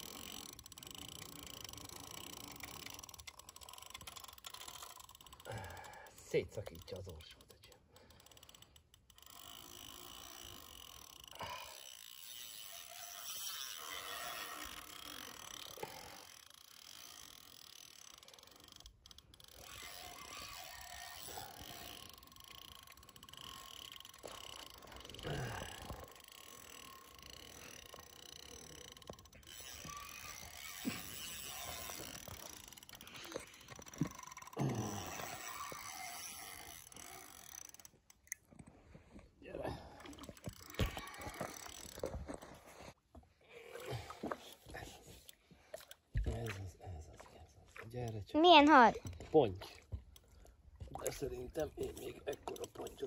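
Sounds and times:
fishing reel whirring: 0.0s - 38.4s, 39.8s - 42.7s.

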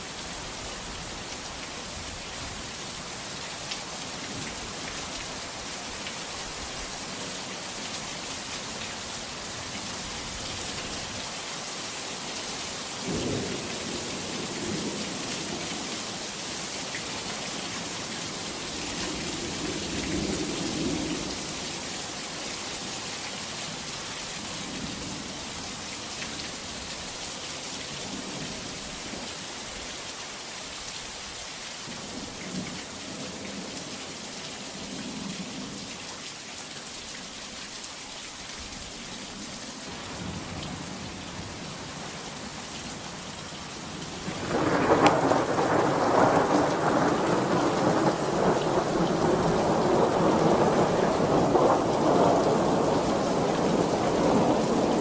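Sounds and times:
steady rain hissing: 0.0s - 55.0s
thunderclap with rumble: 44.3s - 55.0s.

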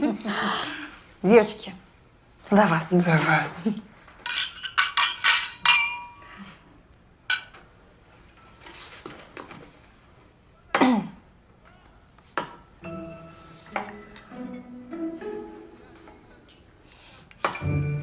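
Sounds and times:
wine glasses clinking: 4.3s - 6.2s.

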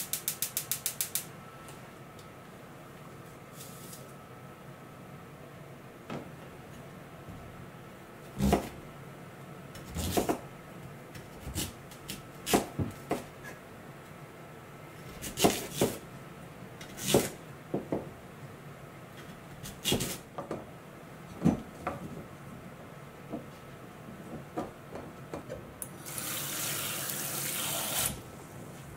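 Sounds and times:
knife chopping on wooden board: 9.8s - 10.4s, 15.2s - 16.0s.

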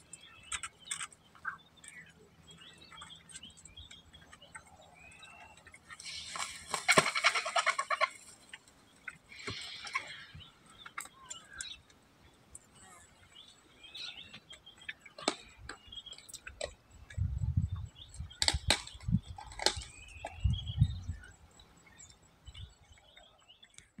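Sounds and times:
birds chirping: 0.0s - 24.0s
sharp clicks and cracks: 18.2s - 20.0s.

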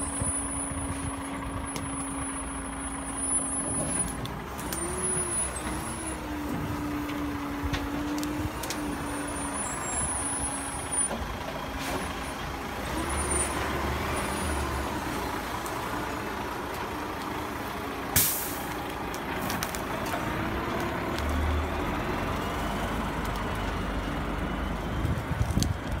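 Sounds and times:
diesel truck engine under load: 0.0s - 26.0s
sharp hiss of air: 18.2s - 18.7s.

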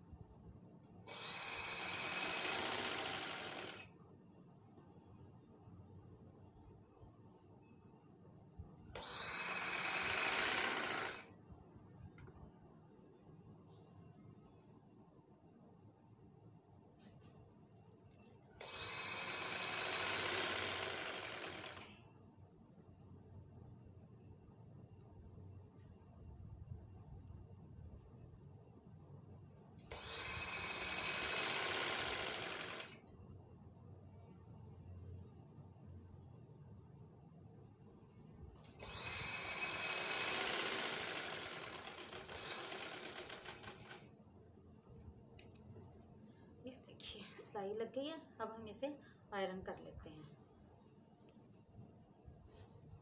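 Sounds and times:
sewing machine stitching: 1.1s - 3.9s, 9.0s - 11.3s, 18.5s - 22.0s, 29.9s - 33.0s, 38.7s - 44.1s.

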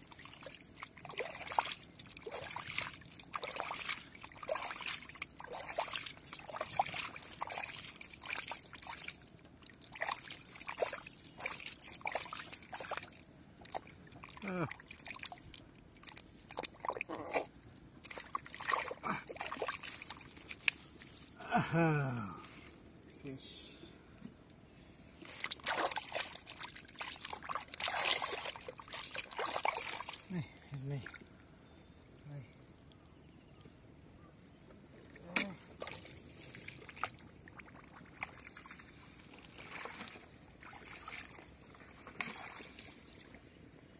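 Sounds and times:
hands squelching in mud: 0.0s - 21.5s, 25.2s - 31.2s.

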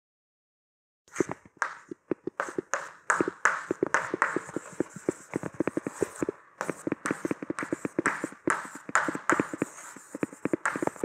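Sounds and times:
chalk tapping on blackboard: 1.6s - 11.0s
chalk scratching strokes: 2.4s - 11.0s.

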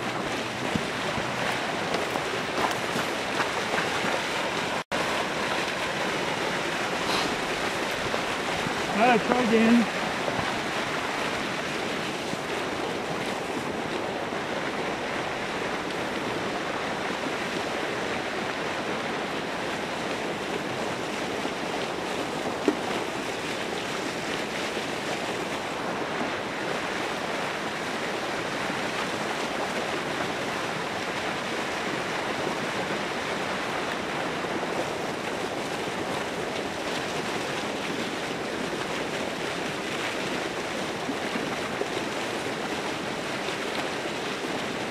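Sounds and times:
rushing splashing water: 0.0s - 44.9s.

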